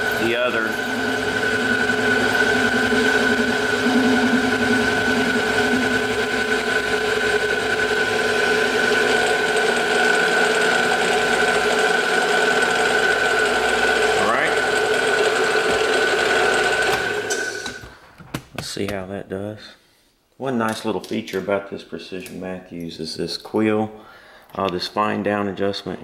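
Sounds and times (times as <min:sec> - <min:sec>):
milling machine spindle whine: 0:00.0 - 0:17.9.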